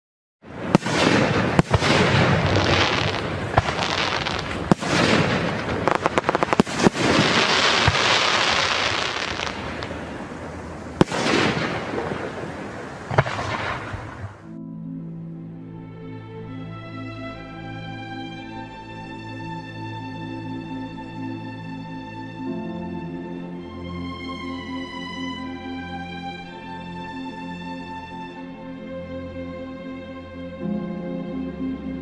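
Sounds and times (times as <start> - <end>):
fireworks bangs: 0.5 - 14.5
fireworks crackling: 0.5 - 14.5
fireworks rushing noise: 0.5 - 14.5.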